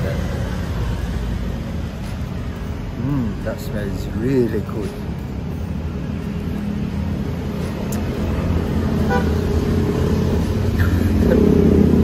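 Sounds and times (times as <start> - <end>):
street traffic engines: 0.0 - 12.0
vehicle horn: 9.0 - 9.5.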